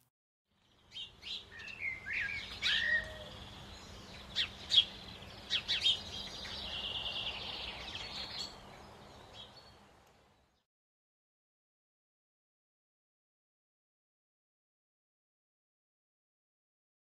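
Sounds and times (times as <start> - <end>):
birds chirping and calling: 0.8 - 9.8
bird trill: 0.9 - 9.8.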